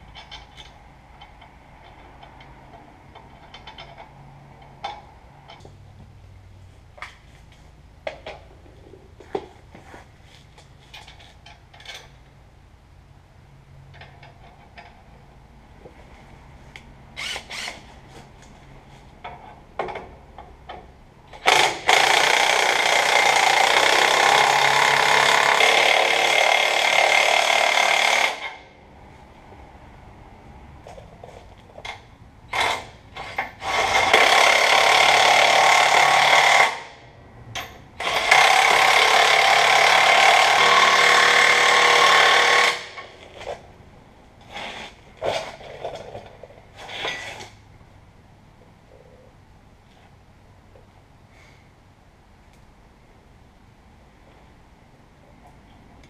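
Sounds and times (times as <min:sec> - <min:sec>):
impact wrench rattling: 0:00.0 - 0:05.8.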